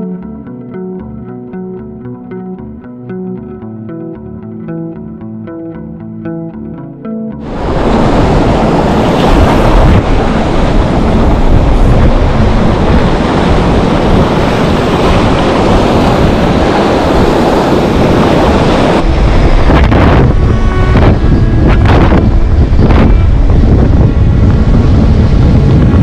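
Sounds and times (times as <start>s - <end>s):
surf breaking in shallow water: 7.4s - 26.0s
wind buffeting microphone: 7.4s - 26.0s.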